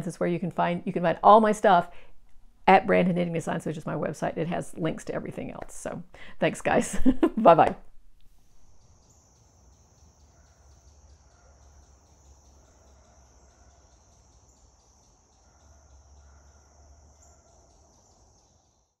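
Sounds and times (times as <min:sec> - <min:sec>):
insects trilling: 0:08.7 - 0:19.0.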